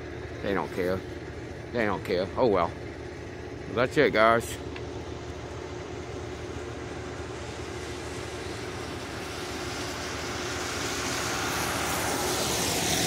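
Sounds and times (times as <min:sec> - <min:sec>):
car tyres hissing on wet road: 0:06.2 - 0:13.0.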